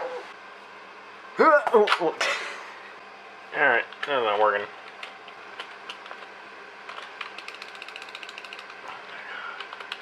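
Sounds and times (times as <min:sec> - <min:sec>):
faint steady hum: 0:00.0 - 0:10.0
keyboard typing: 0:06.9 - 0:08.8, 0:09.6 - 0:10.0.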